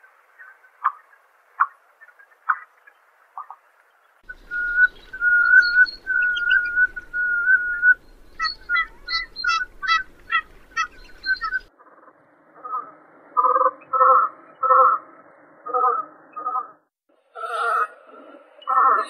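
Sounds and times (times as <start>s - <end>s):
duck whistled calls: 4.3s - 11.6s.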